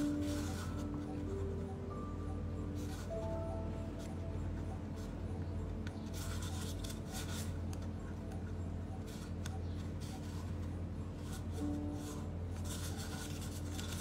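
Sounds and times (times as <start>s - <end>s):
steady low hum: 0.0s - 14.0s
pen scratching on paper cup: 11.2s - 14.0s.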